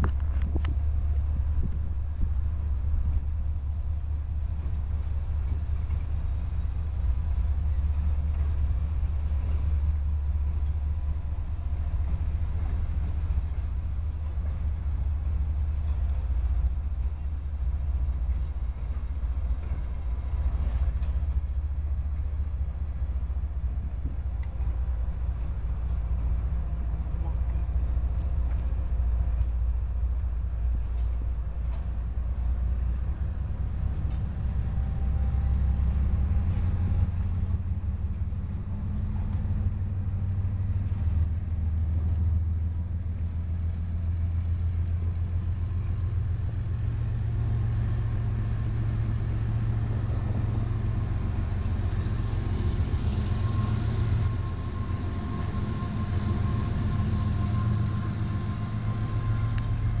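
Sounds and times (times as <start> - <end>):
diesel locomotives rumbling: 0.0 - 60.0
faint thin whine: 41.1 - 60.0.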